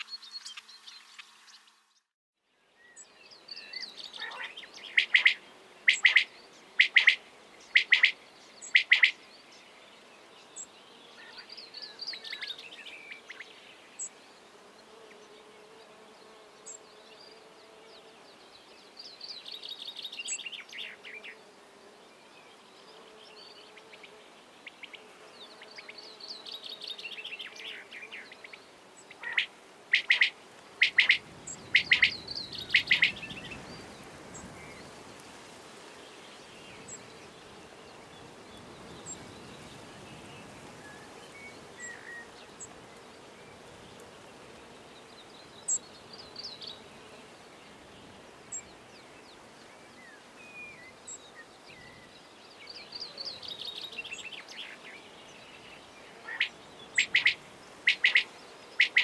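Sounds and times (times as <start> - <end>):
quail calling: 4.2 - 7.2, 7.8 - 8.2, 8.8 - 9.2, 29.2 - 33.2, 56.2 - 59.0
descending bird trills: 29.2 - 33.3, 56.3 - 59.0.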